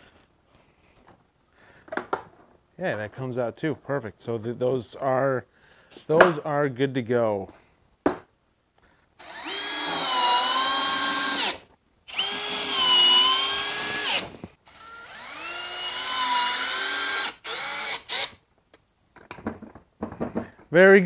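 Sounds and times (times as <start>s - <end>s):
cordless drill driving screws: 9.2s - 18.4s.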